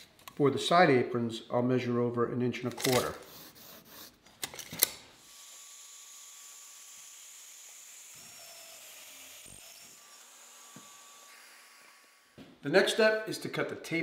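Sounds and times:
pencil scratching on wood: 0:03.2 - 0:04.2.

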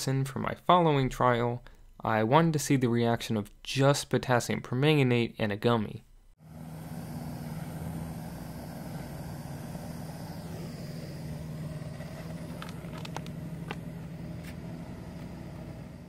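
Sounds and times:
gas torch flame roaring: 0:06.4 - 0:16.0.

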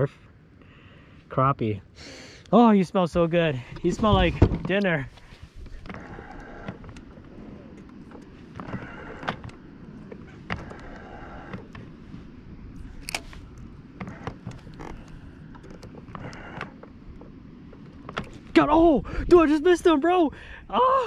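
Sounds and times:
low steady rumble: 0:00.0 - 0:21.0
fishing tackle clicks and knocks: 0:12.9 - 0:18.5.

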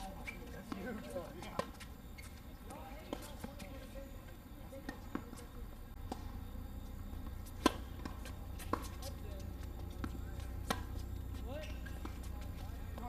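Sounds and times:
low steady hum: 0:00.0 - 0:13.0
tennis ball bouncing on hard court: 0:00.6 - 0:03.9, 0:04.8 - 0:13.0
racket striking ball: 0:07.2 - 0:09.1, 0:10.0 - 0:11.0.

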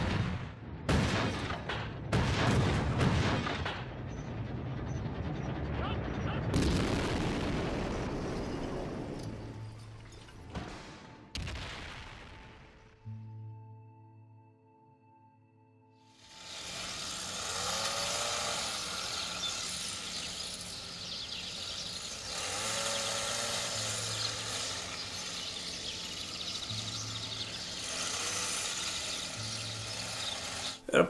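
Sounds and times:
low engine hum: 0:16.3 - 0:30.8
rising and falling calls: 0:16.3 - 0:31.0
sparrows chirping: 0:16.4 - 0:30.9.

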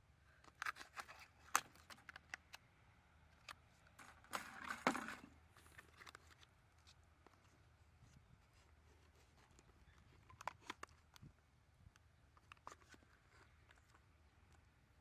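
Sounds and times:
plastic crinkling and rubbing: 0:03.9 - 0:07.5.

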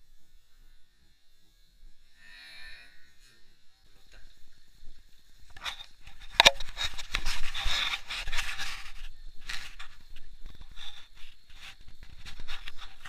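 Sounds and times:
camera handling rubbing: 0:05.5 - 0:13.0
sharp click: 0:06.3 - 0:06.8.

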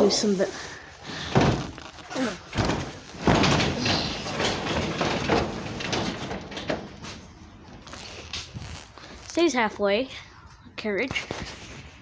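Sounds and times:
garage door rolling on tracks: 0:02.4 - 0:08.6.

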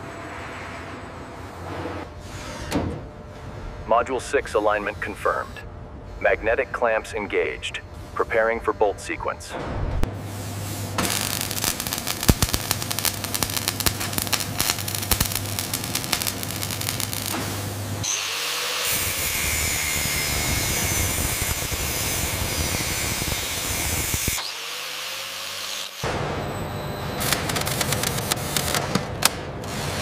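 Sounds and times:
steady hum: 0:00.0 - 0:18.1
arc welding crackling: 0:10.2 - 0:24.5, 0:27.2 - 0:29.0
angle grinder cutting steel: 0:18.0 - 0:26.0.

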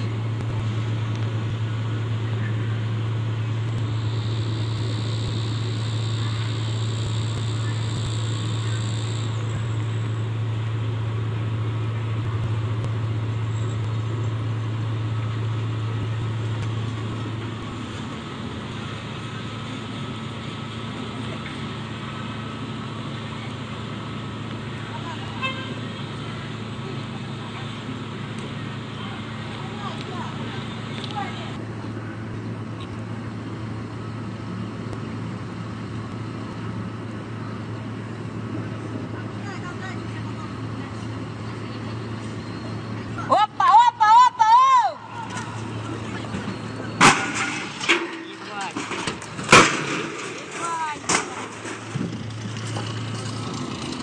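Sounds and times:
diesel engine humming: 0:00.0 - 0:54.0
faint high whine: 0:00.4 - 0:17.8.

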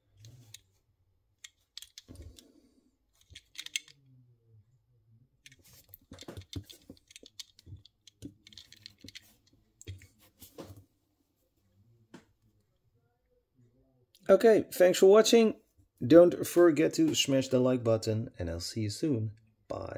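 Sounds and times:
clicks of handling small model cars: 0:01.4 - 0:02.5, 0:03.2 - 0:04.0, 0:05.4 - 0:10.6.

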